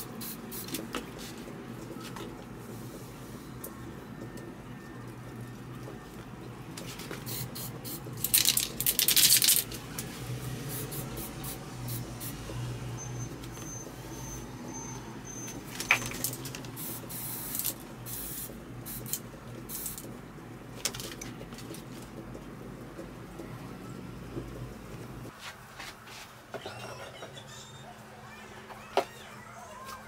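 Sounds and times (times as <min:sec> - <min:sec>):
spray paint can hissing: 0:00.0 - 0:00.8, 0:07.2 - 0:09.6, 0:10.7 - 0:12.4, 0:16.8 - 0:20.1.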